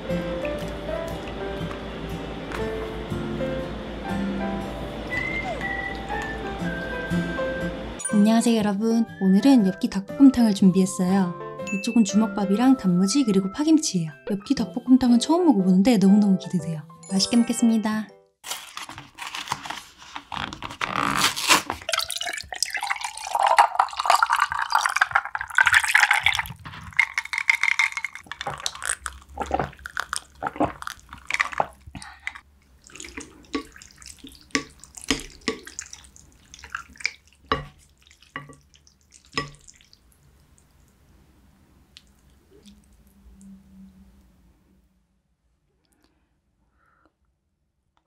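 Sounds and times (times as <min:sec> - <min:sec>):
ice clicking: 0:21.2 - 0:37.7
drink pouring into glass: 0:21.8 - 0:39.8
person gulping: 0:21.9 - 0:37.4.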